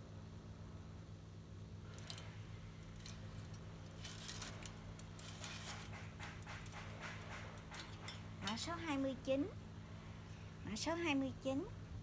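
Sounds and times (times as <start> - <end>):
wire hangers clinking on metal rail: 1.9 - 9.0.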